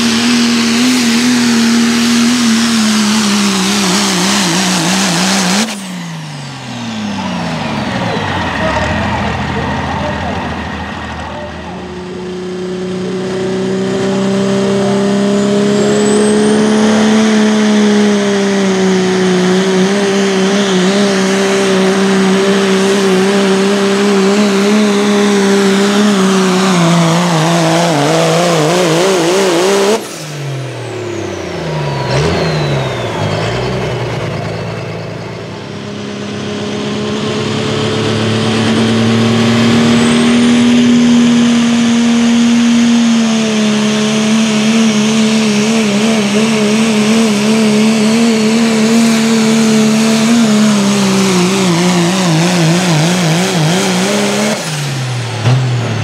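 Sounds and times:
diesel pickup engine droning: 0:00.0 - 0:56.0.

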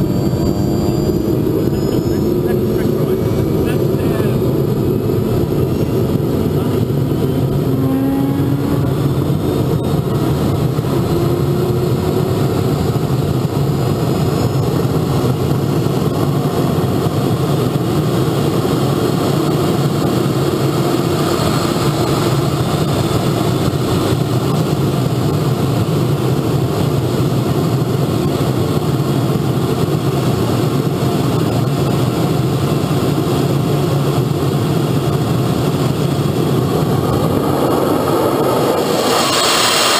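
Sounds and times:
model jet turbine engine running: 0:00.0 - 0:39.9.

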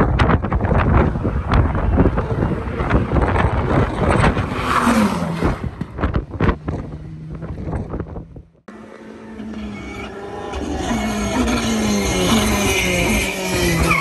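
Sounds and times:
wind buffeting microphone: 0:00.0 - 0:08.6
rally car passing by: 0:00.7 - 0:07.9.

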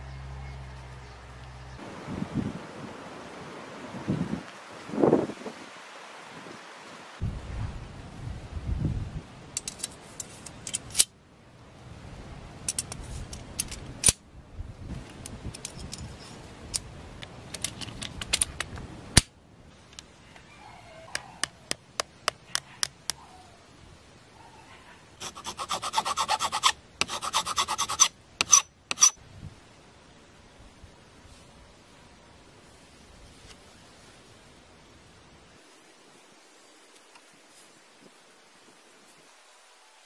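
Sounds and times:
metal rubbing: 0:25.2 - 0:29.2
rapid scraping strokes: 0:25.2 - 0:29.2.

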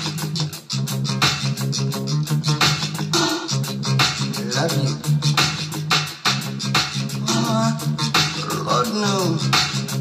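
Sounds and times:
reggae bass line: 0:00.0 - 0:10.0
person singing: 0:04.3 - 0:05.5, 0:07.1 - 0:10.0.

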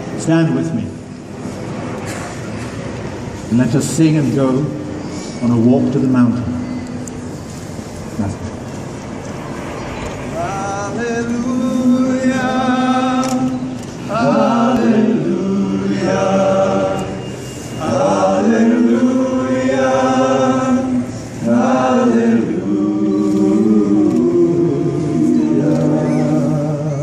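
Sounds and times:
group of voices singing: 0:10.3 - 0:27.0.

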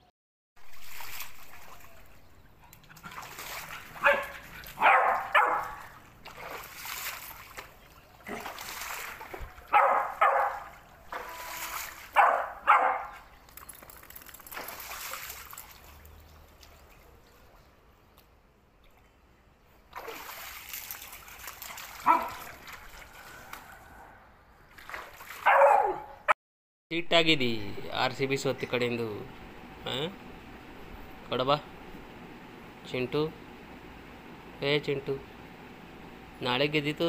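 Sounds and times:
dog barking: 0:04.0 - 0:06.0, 0:09.7 - 0:10.7, 0:12.2 - 0:13.2, 0:22.0 - 0:22.5, 0:25.4 - 0:26.3.

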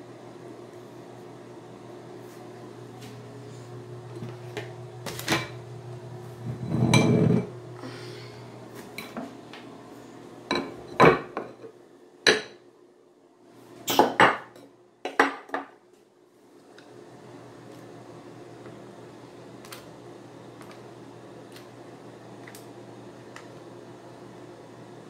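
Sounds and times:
steady low hum: 0:00.0 - 0:13.8.

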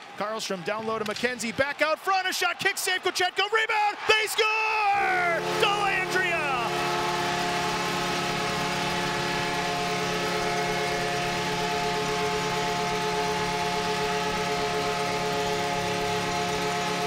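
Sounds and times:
crowd cheering: 0:00.0 - 0:17.0
goal horn blast: 0:04.7 - 0:17.0.

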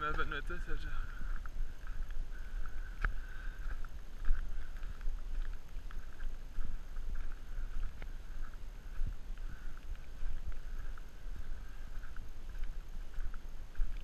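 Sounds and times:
volcano low rumble: 0:00.0 - 0:14.0.

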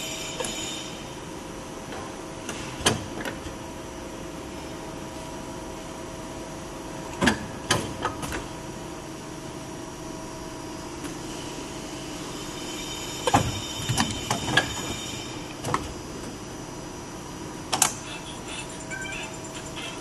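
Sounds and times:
pneumatic hiss: 0:11.2 - 0:15.8.

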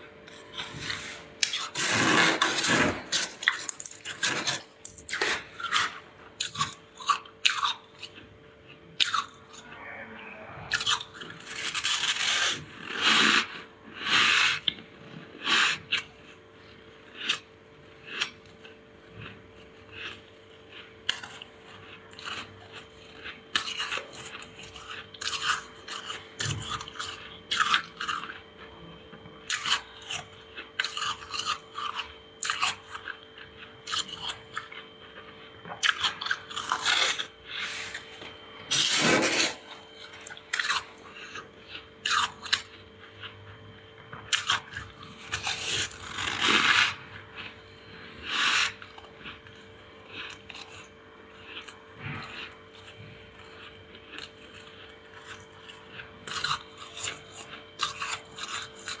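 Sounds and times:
teeth crunching frost: 0:00.2 - 0:59.0
spoon scraping frost: 0:35.8 - 0:41.4.

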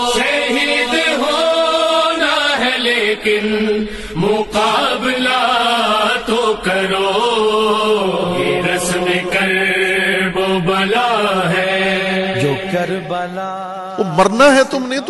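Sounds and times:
man chanting into a microphone: 0:10.6 - 0:15.0.

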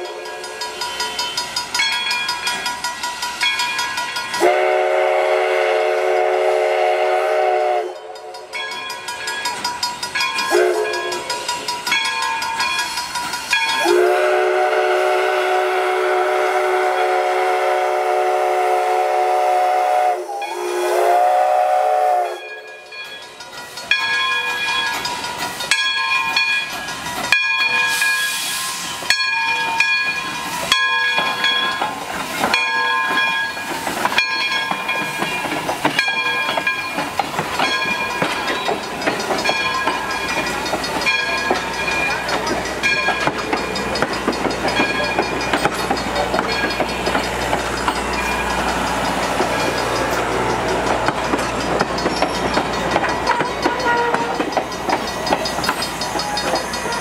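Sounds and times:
steam whistle blowing: 0:00.0 - 0:01.1, 0:04.4 - 0:08.4, 0:10.5 - 0:11.3, 0:13.8 - 0:22.6, 0:53.3 - 0:54.5
steam hiss: 0:00.0 - 0:57.0
locomotive exhaust chuffs: 0:31.2 - 0:57.0
level crossing bell ringing: 0:37.6 - 0:57.0.

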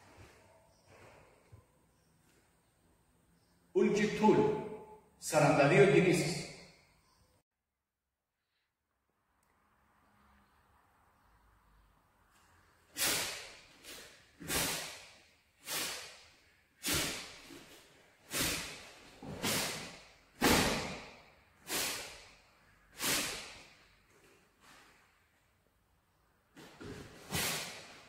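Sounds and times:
uniform swishing snaps: 0:13.0 - 0:22.4, 0:23.0 - 0:23.9, 0:26.6 - 0:28.0.

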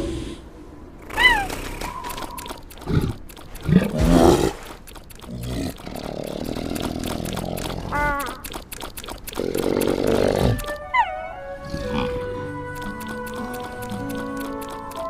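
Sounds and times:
cartoon animal grunts: 0:05.3 - 0:08.6, 0:09.4 - 0:10.7.

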